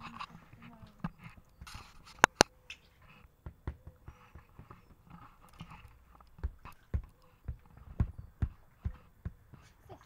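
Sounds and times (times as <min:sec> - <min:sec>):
dog claws tapping on vinyl: 0:05.5 - 0:09.8.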